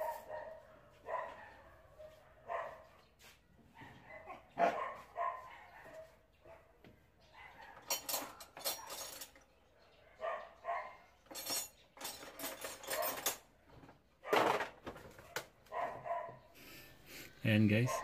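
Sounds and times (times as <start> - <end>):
dog barking: 0.0 - 9.0, 9.8 - 11.2, 12.9 - 13.2, 15.2 - 16.5.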